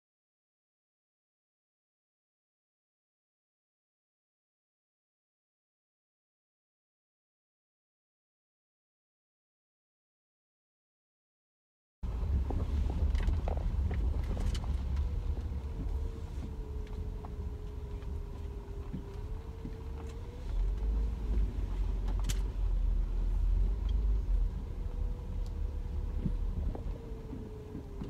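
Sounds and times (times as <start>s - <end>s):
car engine and road rumble: 12.0s - 28.0s.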